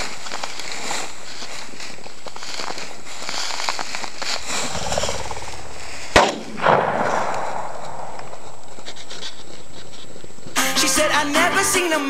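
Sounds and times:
shotgun shot: 6.1s - 8.5s.

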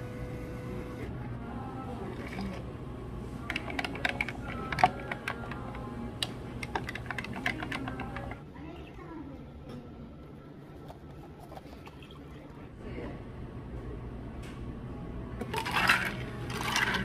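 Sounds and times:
spoon and ice clinking in glass: 3.5s - 5.6s, 15.4s - 17.0s.

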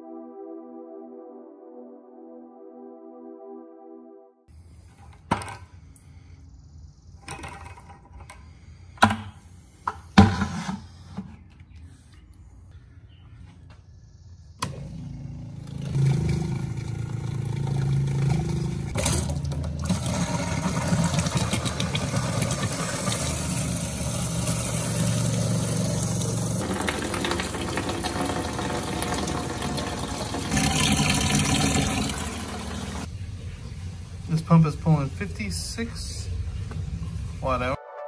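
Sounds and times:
water pump humming: 14.7s - 33.1s
water flowing from faucet: 16.0s - 33.1s
water splashing into plastic bucket: 26.6s - 33.0s.

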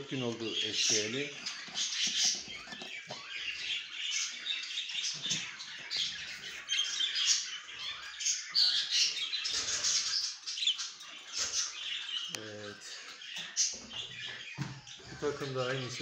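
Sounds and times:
budgerigars chattering: 0.0s - 16.0s.

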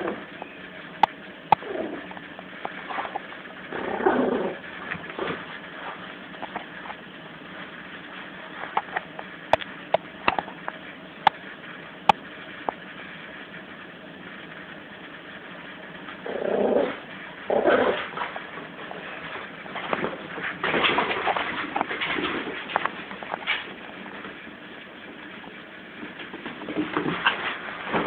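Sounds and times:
puppy play growls: 0.0s - 0.3s, 1.5s - 6.7s, 16.2s - 23.8s.

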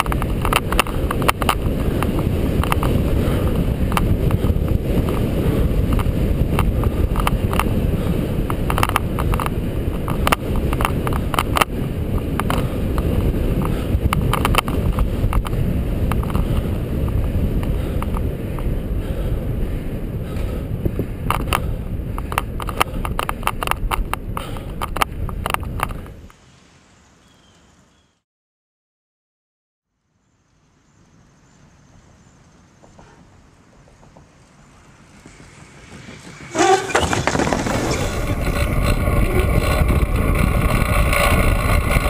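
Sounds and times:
wind on microphone: 0.0s - 26.3s, 35.0s - 42.0s
bicycle tyres on concrete: 0.0s - 28.1s, 32.2s - 42.0s.

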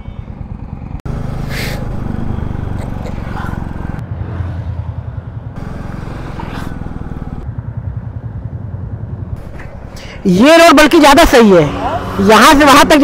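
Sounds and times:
motorcycle engine running: 0.0s - 4.2s, 4.8s - 9.9s.

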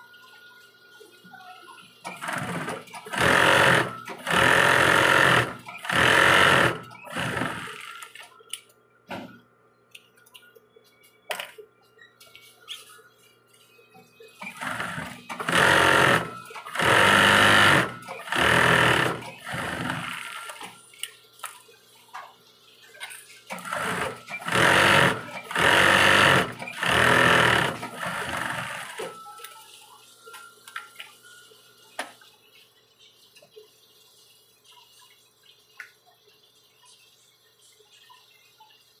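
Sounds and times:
faint motor hum: 0.4s - 30.6s
sewing machine stitching: 2.1s - 8.2s, 14.4s - 20.7s, 23.5s - 29.2s.

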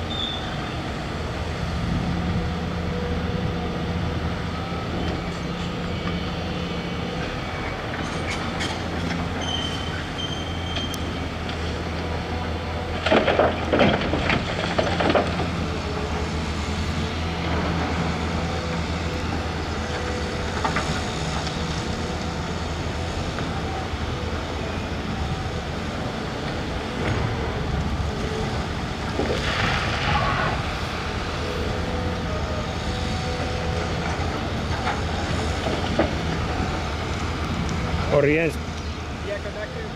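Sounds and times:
diesel engine running: 0.0s - 39.9s
short high squeal: 0.1s - 0.8s, 9.4s - 11.1s.

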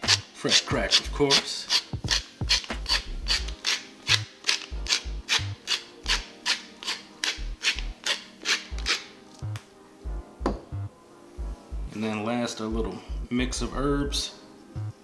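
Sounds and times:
pepper mill grinding: 0.0s - 9.1s.

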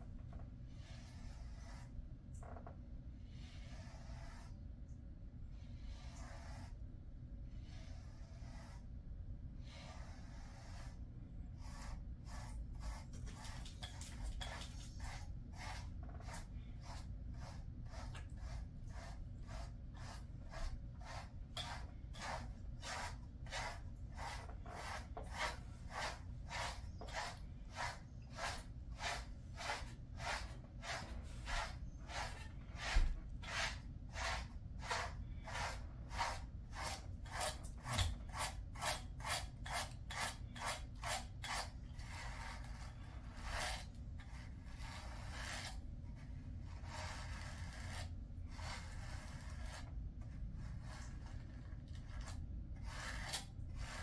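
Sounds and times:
brush strokes through dog fur: 0.8s - 2.0s, 3.4s - 4.6s, 5.6s - 6.8s, 7.5s - 9.0s, 9.6s - 37.7s.

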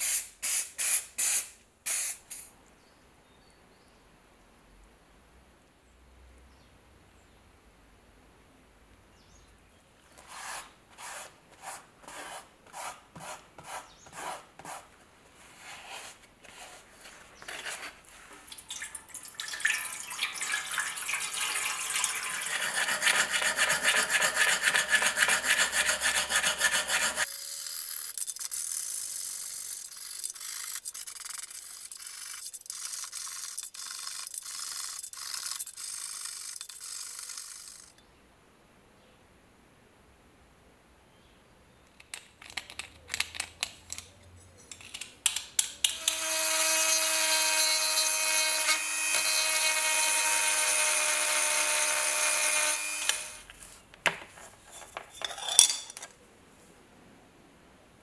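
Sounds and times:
wire brush scrubbing metal: 22.2s - 27.3s.

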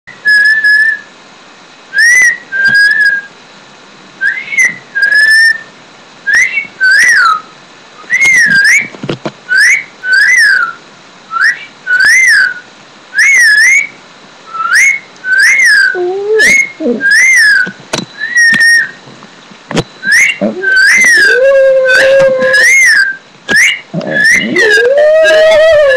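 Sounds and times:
person whistling: 14.6s - 18.9s, 20.0s - 25.9s
dog howling: 15.7s - 17.6s, 20.1s - 25.9s.

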